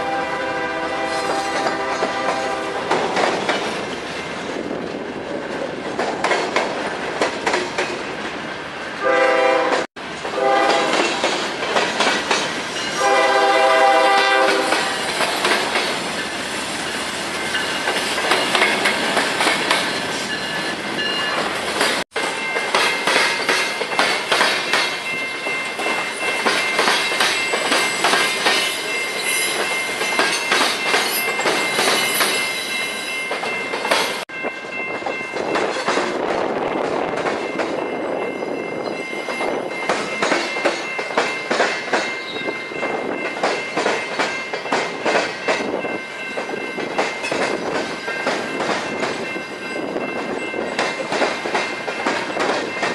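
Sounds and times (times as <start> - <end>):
locomotive horn: 0.0 - 2.9, 9.0 - 11.2, 13.0 - 15.0
high wheel squeal: 27.5 - 33.3.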